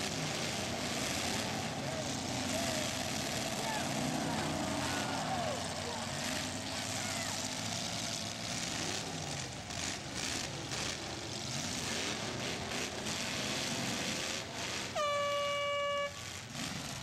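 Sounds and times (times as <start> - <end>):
car engines running: 0.0 - 17.0
loud air horn blast: 15.0 - 16.3.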